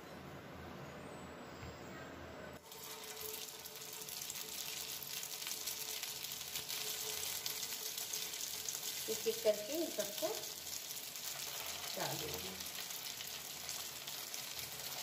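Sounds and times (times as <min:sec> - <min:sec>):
oil sizzling in a frying pan: 0:02.6 - 0:15.0.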